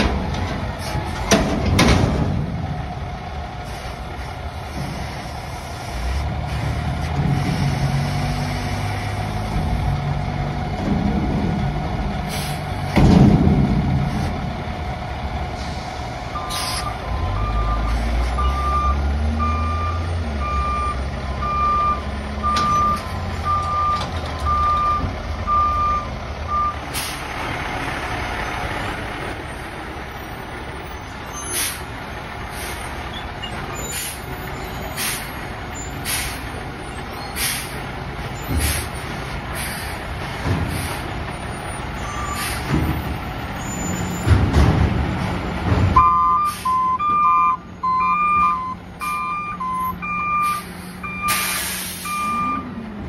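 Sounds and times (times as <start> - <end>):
truck engine running: 0.0 - 53.0
truck backup alarm beeping: 16.3 - 27.2, 41.3 - 44.4, 45.5 - 52.8
lower backup beeper: 16.4 - 26.8, 46.0 - 52.7
sharp knocks and hisses: 38.5 - 41.2.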